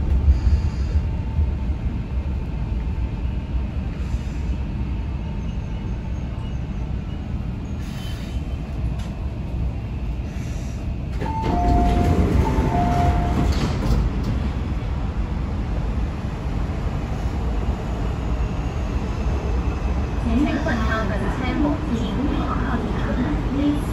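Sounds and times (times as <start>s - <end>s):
train running and brake rumble: 0.0s - 23.9s
train doors sliding open: 11.0s - 15.1s.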